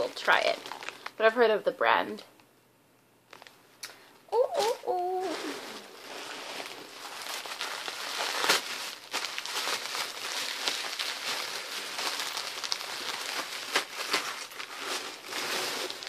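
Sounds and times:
sharp paper crackle: 0.0s - 1.2s, 4.4s - 16.0s
wrapping paper crinkling: 0.0s - 1.3s, 3.3s - 3.6s, 4.4s - 16.0s.

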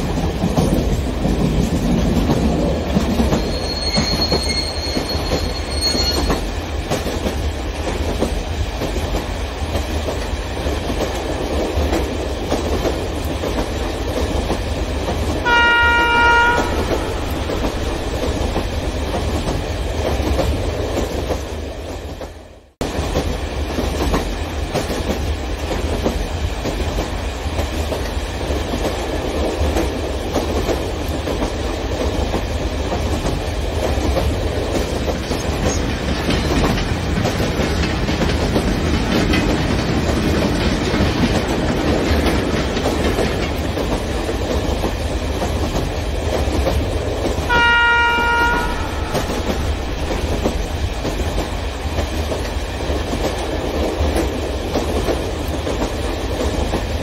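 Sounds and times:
model locomotive horn: 15.4s - 17.6s, 47.5s - 49.7s
model train wheels on rails: 16.2s - 57.0s.

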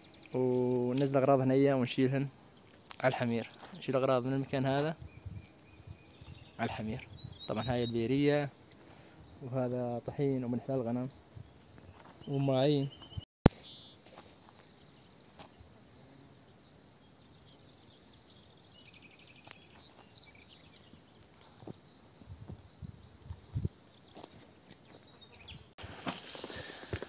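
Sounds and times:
insects chirring: 0.0s - 27.0s.

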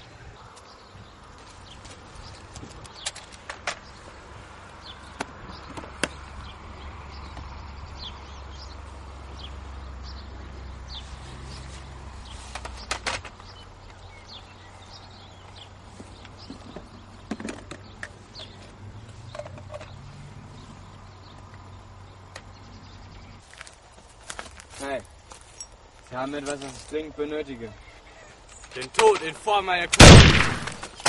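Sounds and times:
bird chirps: 4.8s - 23.4s
case set down on stone: 16.4s - 18.1s.

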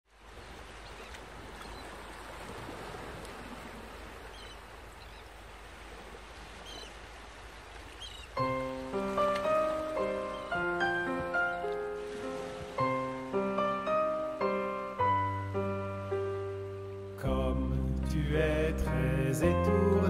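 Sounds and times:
waves washing: 0.1s - 20.0s
faint short bird calls: 4.2s - 5.3s, 6.6s - 7.0s, 7.9s - 8.4s
instrumental music with held notes: 8.4s - 17.2s.

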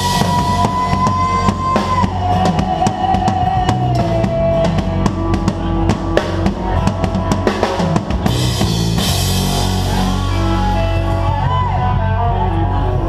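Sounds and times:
bass and guitar notes: 0.0s - 13.0s.

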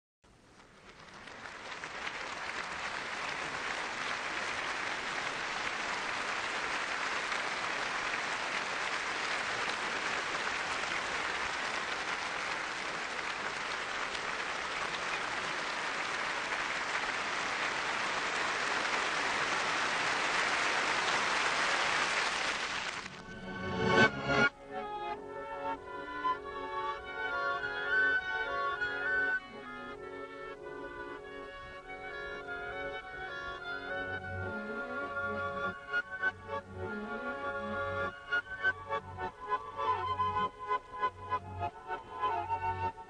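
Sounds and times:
audience applauding: 0.6s - 24.1s.

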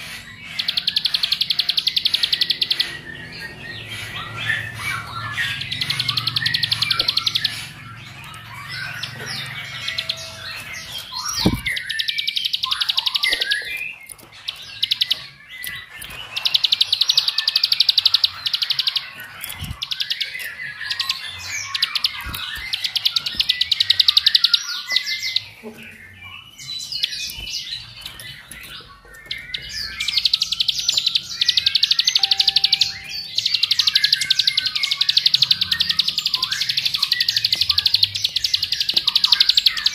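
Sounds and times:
bird chirps: 0.0s - 39.9s
bird buzzing trills: 11.2s - 12.1s, 32.1s - 39.8s.

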